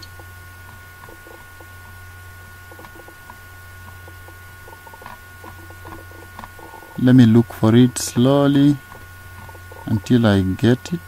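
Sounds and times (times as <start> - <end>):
faint steady tones: 0.0 - 11.0
low electrical hum: 0.0 - 11.0.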